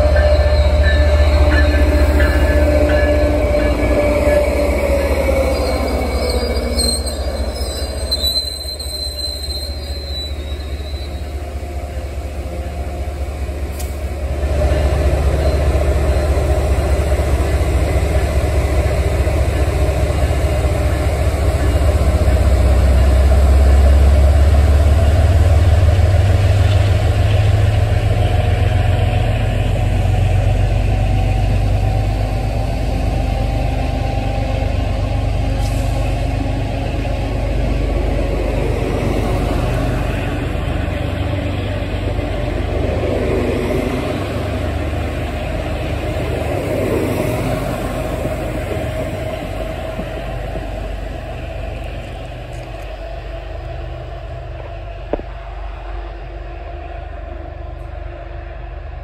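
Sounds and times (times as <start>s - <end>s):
train wheels squealing: 0.0s - 13.0s, 14.7s - 16.4s
steel wheels rumbling on rail: 0.0s - 59.0s.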